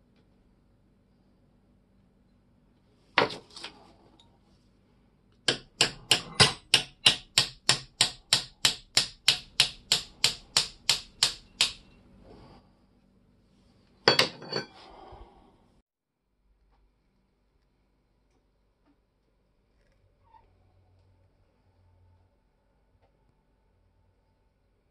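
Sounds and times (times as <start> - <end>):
small hammer tapping on metal: 5.5 - 11.9.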